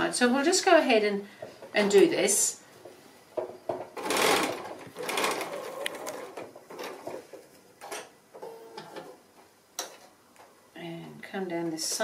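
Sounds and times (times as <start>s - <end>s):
sewing machine stitching: 4.0s - 7.0s.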